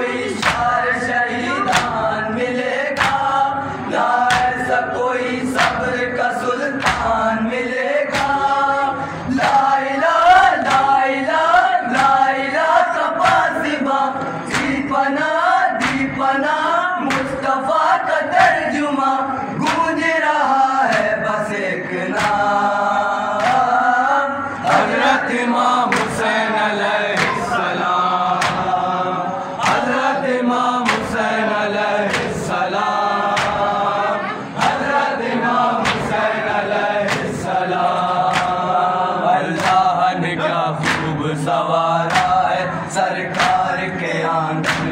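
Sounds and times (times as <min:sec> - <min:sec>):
men chanting through microphone: 0:00.0 - 0:44.9
hand slaps on chest: 0:01.7 - 0:02.0, 0:03.0 - 0:03.3, 0:04.3 - 0:04.6, 0:05.6 - 0:05.8, 0:06.8 - 0:07.1, 0:15.8 - 0:16.1, 0:22.2 - 0:22.4, 0:23.4 - 0:23.7, 0:25.9 - 0:26.2, 0:28.4 - 0:28.7, 0:30.8 - 0:31.1, 0:33.4 - 0:33.7, 0:35.8 - 0:36.2, 0:37.1 - 0:37.4, 0:38.3 - 0:38.6, 0:42.1 - 0:42.4, 0:44.6 - 0:44.9.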